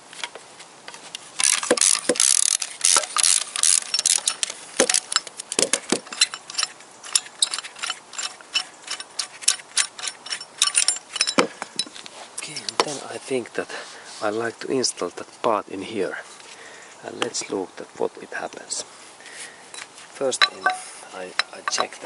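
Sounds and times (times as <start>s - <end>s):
ratchet wrench clicking: 1.4s - 5.3s, 6.1s - 11.4s
dull metal knocks: 20.4s - 22.0s.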